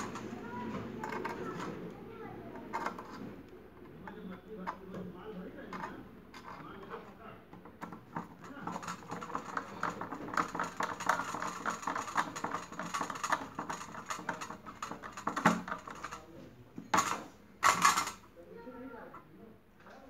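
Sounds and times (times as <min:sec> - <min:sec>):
screwdriver turning a screw: 0:07.8 - 0:16.3.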